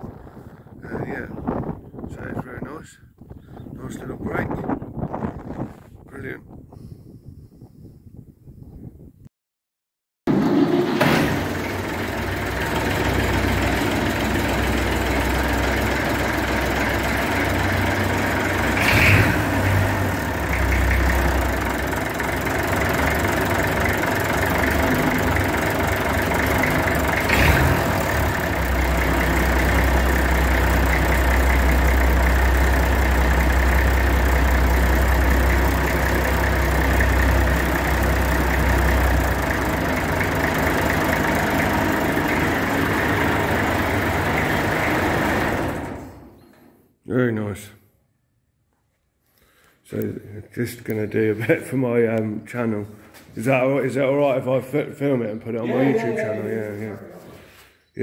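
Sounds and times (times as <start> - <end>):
engine running steadily: 10.3 - 46.4.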